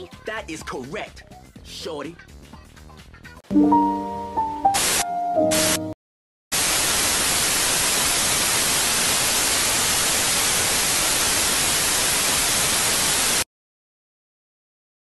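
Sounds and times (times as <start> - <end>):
tv static hiss: 4.8 - 5.9, 6.6 - 13.4.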